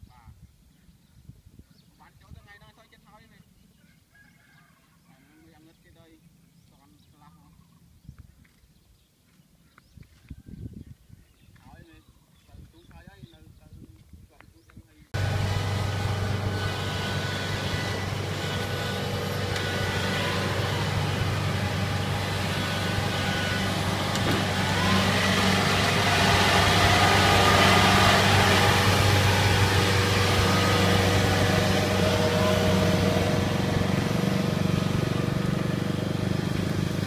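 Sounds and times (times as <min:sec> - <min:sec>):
diesel engine running: 0:15.2 - 0:37.0
tracks rolling: 0:15.2 - 0:37.0.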